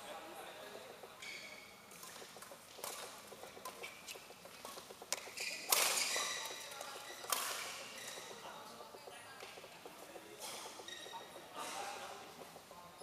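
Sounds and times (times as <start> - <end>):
shoes squeaking on court: 1.2 - 11.6
rackets hitting shuttlecock: 1.9 - 7.8.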